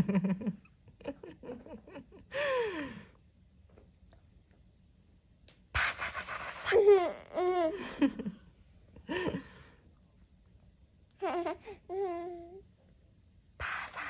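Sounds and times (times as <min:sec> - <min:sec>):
baby laughing: 0:06.7 - 0:07.8, 0:11.2 - 0:12.6
baby voice sound: 0:11.2 - 0:12.6.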